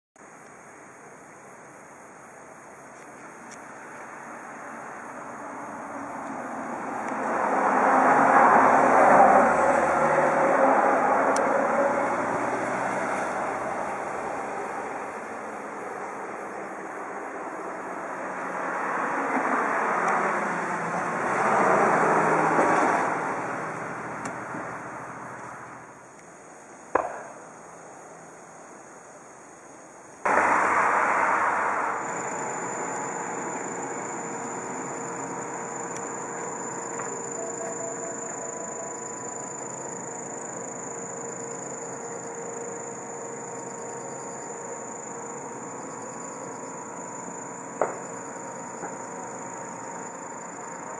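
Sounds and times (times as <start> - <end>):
vehicle passing: 4.7 - 25.8, 30.3 - 47.8.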